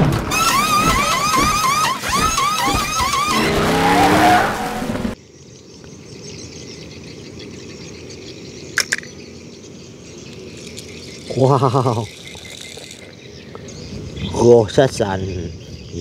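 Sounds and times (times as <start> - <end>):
tire skid: 0.0 - 5.2
race car engine revving: 0.3 - 5.2.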